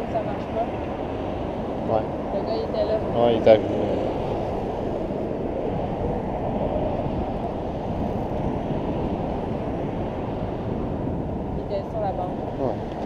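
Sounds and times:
city traffic rumbling: 0:00.0 - 0:13.0
wind on microphone: 0:00.0 - 0:13.0.

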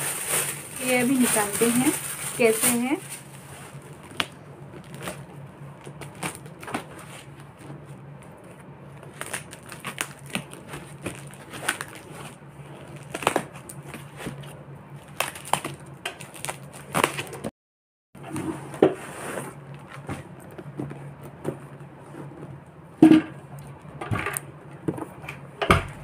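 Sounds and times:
foam crinkling: 0:00.0 - 0:17.5.

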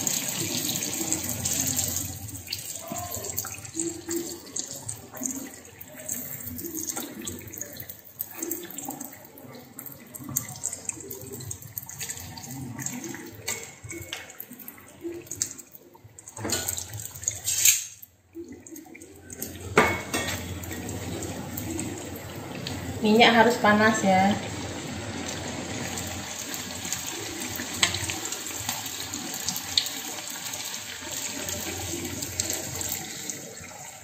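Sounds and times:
dough deep-frying in crackling oil: 0:00.0 - 0:34.0
metal utensils scraping wok: 0:17.3 - 0:18.0.

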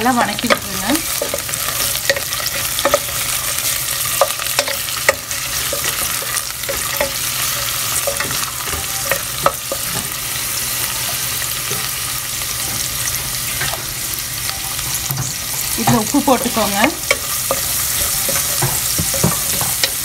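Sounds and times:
vegetables sizzling in hot oil: 0:00.0 - 0:20.0
wooden spatula knocking on pan: 0:15.1 - 0:20.0.

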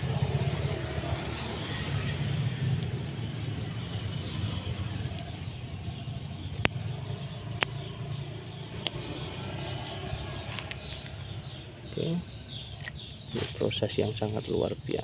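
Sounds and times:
sharp clicks: 0:06.4 - 0:11.3.

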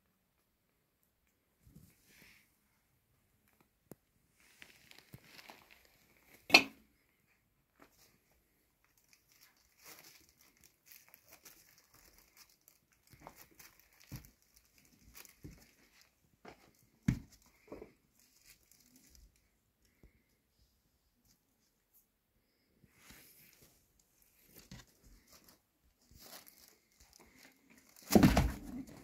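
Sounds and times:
cat rustling over cardboard: 0:22.8 - 0:29.0.

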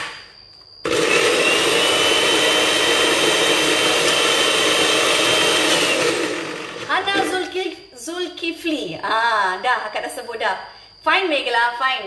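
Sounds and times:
thin steady whine: 0:00.0 - 0:12.0
electric blender grinding: 0:00.8 - 0:07.6.

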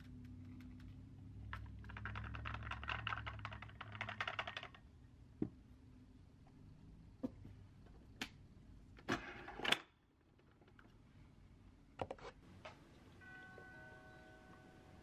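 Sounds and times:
objects clicking and knocking: 0:00.0 - 0:05.6
faint steady tones: 0:11.0 - 0:15.0.

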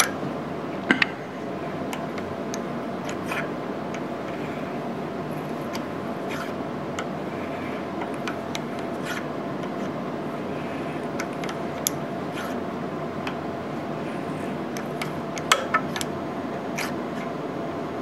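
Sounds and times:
steady hum: 0:00.0 - 0:18.0
tap cutting threads clicking and scraping: 0:01.9 - 0:04.4, 0:08.0 - 0:10.0, 0:11.0 - 0:12.6, 0:14.7 - 0:16.1.

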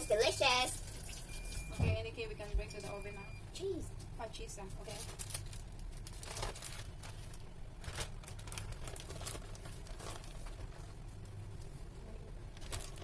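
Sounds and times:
low steady hum: 0:00.0 - 0:13.0
baking paper crinkling: 0:04.7 - 0:13.0.

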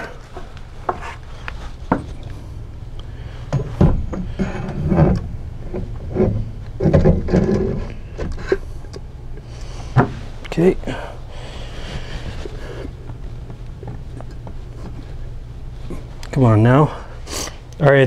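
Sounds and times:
metal knocks and scrapes: 0:03.5 - 0:08.6.

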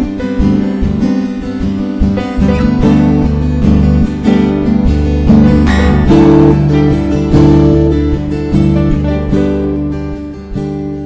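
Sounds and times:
strummed acoustic guitar: 0:00.0 - 0:11.0.

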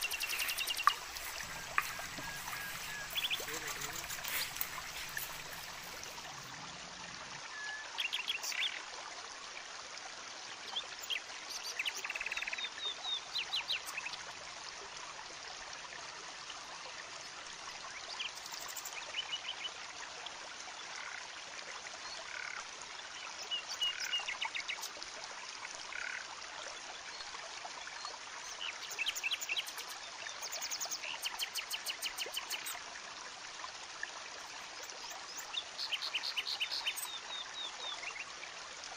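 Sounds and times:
stream rushing: 0:00.0 - 0:08.6.

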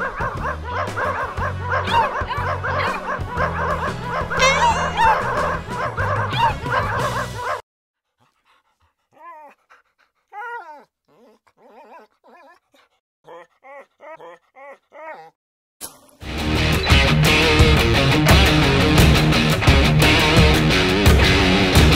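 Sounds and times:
background music with dog barks: 0:00.0 - 0:07.6
dog whimpering and yipping: 0:04.3 - 0:06.6, 0:09.1 - 0:09.7, 0:10.3 - 0:15.3
loud rock music with electric guitar: 0:16.2 - 0:21.9.

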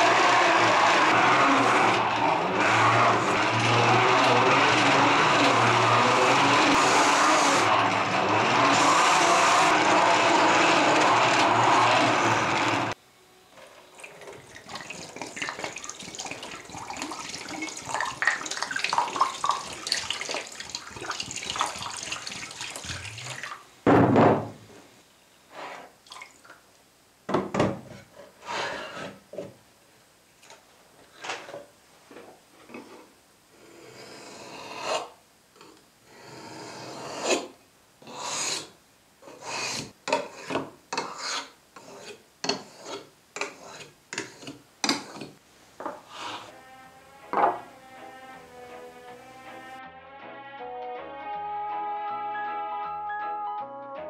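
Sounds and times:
buffing wheel whirring: 0:00.0 - 0:13.0
water running into a tray: 0:14.0 - 0:23.6
loud thump: 0:23.9 - 0:24.6
knife rasping on whetstone: 0:39.3 - 0:45.2.

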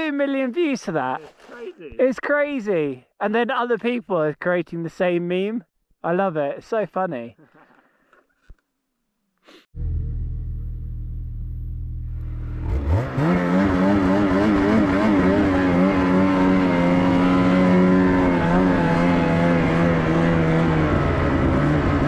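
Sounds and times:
snowmobile engine revving: 0:12.2 - 0:22.0.

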